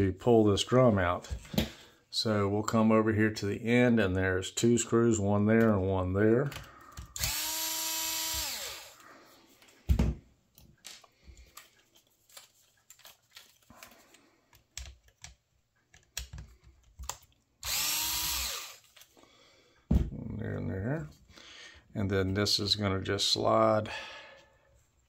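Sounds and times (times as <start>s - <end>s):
electric screwdriver whining: 7.2s - 9.0s, 17.6s - 18.9s.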